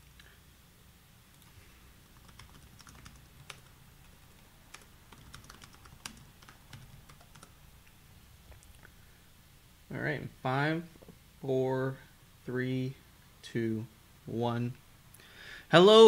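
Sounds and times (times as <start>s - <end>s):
low steady hum: 0.0s - 16.0s
computer keyboard keystrokes: 2.2s - 3.8s, 4.7s - 7.5s.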